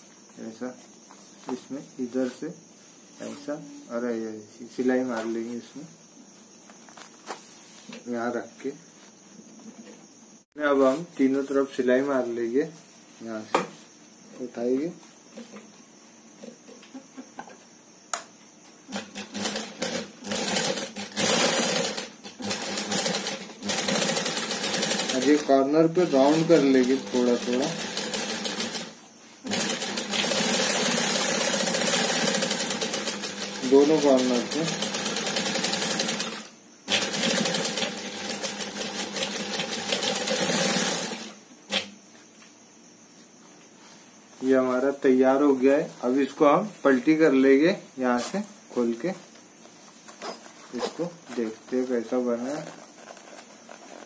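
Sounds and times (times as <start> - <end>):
sewing machine stitching: 18.9 - 41.9.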